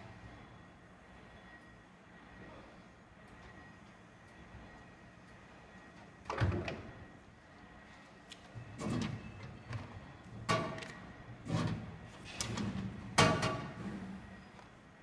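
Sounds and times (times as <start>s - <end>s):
vending machine flap knocking and rattling: 12.4s - 13.8s.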